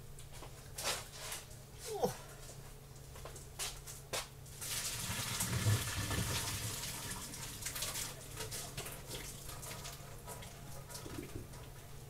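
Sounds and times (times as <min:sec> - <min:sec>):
water running into a sink: 0:04.6 - 0:11.5.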